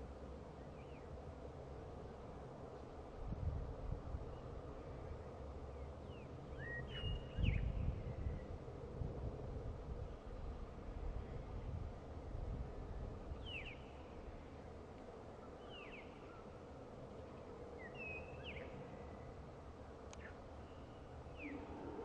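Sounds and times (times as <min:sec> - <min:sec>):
low outdoor rumble: 0:18.5 - 0:22.0.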